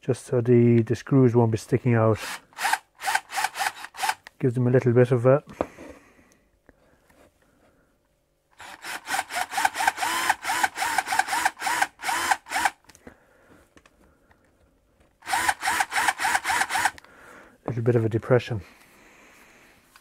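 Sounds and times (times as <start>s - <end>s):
power drill bursts: 2.2s - 4.3s, 8.6s - 12.8s, 15.2s - 17.0s.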